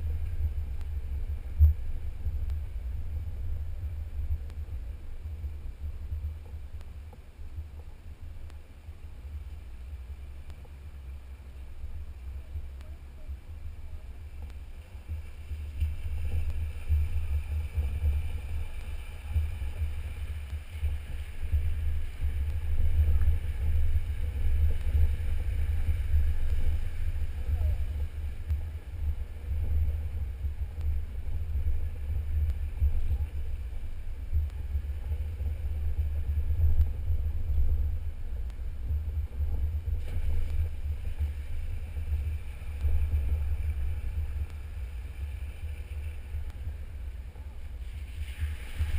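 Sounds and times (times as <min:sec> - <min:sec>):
vehicle engine rumbling: 0:00.0 - 0:48.9
wind buffeting microphone: 0:09.8 - 0:48.9.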